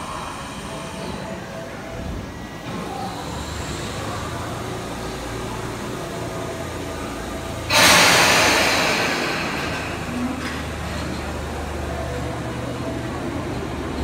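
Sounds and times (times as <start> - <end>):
electric train equipment humming: 0.0 - 14.0
air brakes hissing: 7.6 - 11.2.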